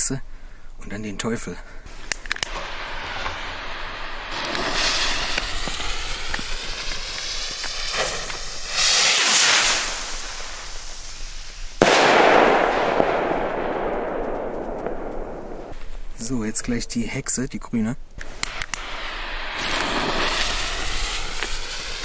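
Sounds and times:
firework rocket hissing: 0:01.9 - 0:16.2, 0:18.2 - 0:22.0
rocket whoosh: 0:01.9 - 0:16.2, 0:18.2 - 0:22.0
firework bang: 0:02.4 - 0:15.8, 0:18.4 - 0:22.0.

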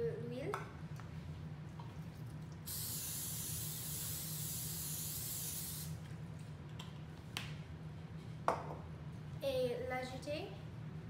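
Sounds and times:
aerosol spray hiss: 0:02.7 - 0:06.0.

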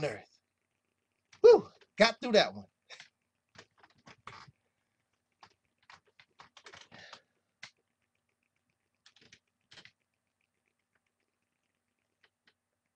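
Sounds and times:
faint clicks: 0:02.9 - 0:12.9.

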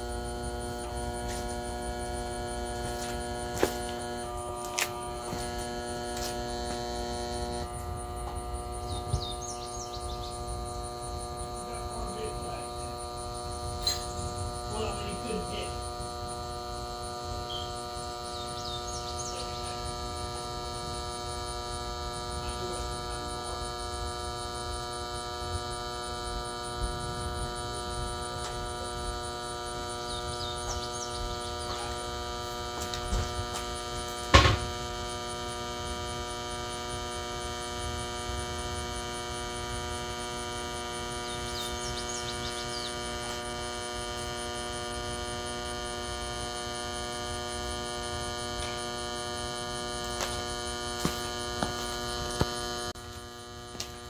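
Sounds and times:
blender motor humming: 0:00.0 - 0:54.0
sharp knock: 0:34.3 - 0:34.7.

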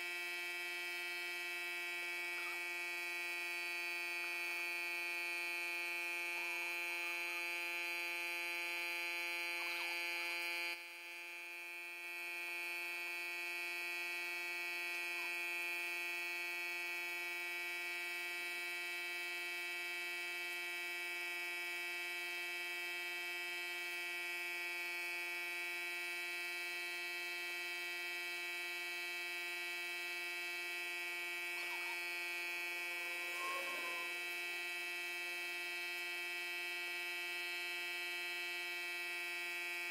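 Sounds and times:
steady electric hum: 0:00.0 - 0:39.9.

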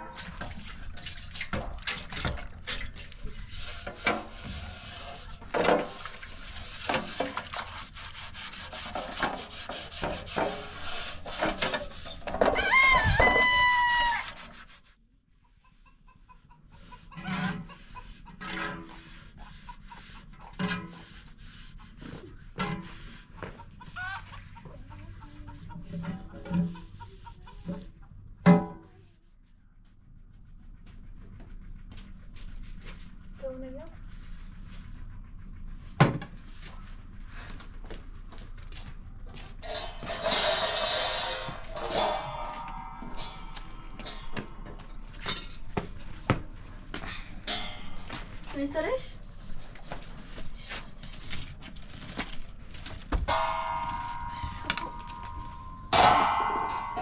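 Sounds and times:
rooster crowing: 0:12.5 - 0:14.3.

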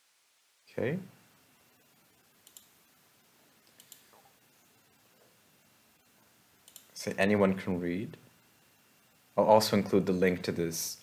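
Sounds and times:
computer mouse clicks: 0:02.4 - 0:02.8, 0:03.6 - 0:04.3, 0:06.6 - 0:07.0.

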